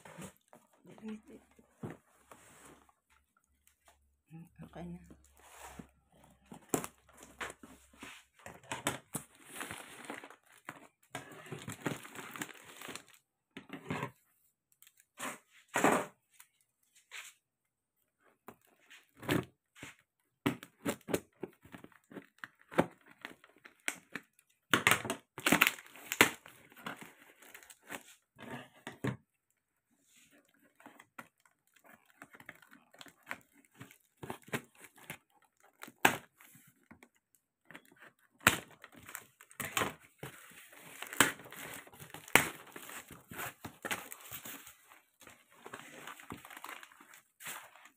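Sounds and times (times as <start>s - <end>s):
tape and cardboard crinkling: 5.2s - 13.3s, 18.2s - 28.8s, 30.2s - 47.9s.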